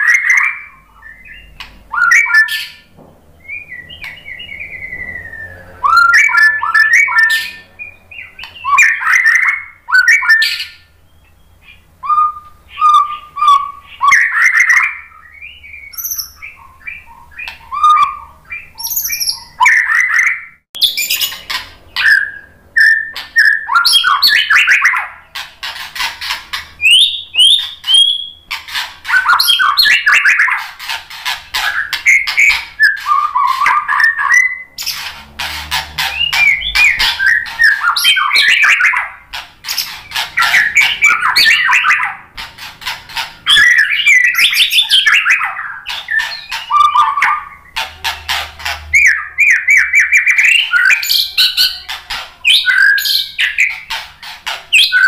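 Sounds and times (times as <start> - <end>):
bird singing whistles and trills: 0.0 - 30.9, 31.5 - 35.1, 36.0 - 42.3, 43.1 - 47.9, 48.9 - 54.0, 54.7 - 55.0.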